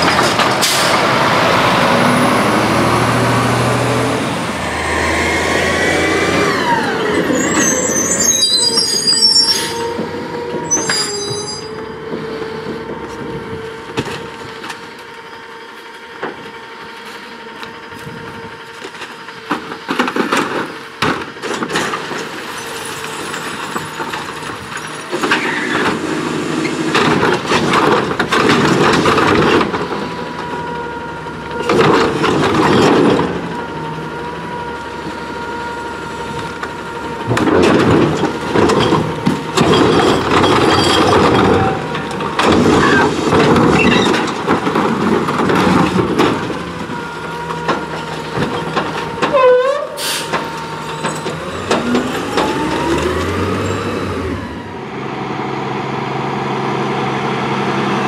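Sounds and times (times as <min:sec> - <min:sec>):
cart dumped with clatter: 0:00.0 - 0:01.1, 0:18.9 - 0:30.1, 0:37.2 - 0:53.8
garbage truck whine: 0:00.0 - 0:58.0.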